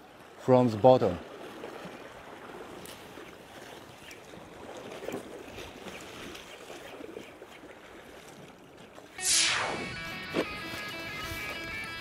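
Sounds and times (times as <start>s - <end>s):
sea water washing: 0.0s - 12.0s
wind: 0.0s - 12.0s.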